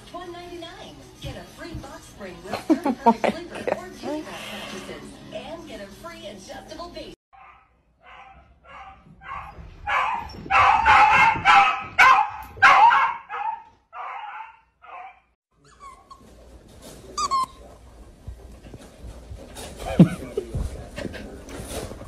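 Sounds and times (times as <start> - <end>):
dog barking: 7.4 - 15.3.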